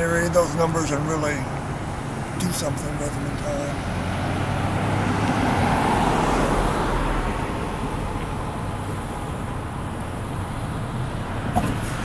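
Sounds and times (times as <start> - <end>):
passing car rush: 0.0 - 12.0.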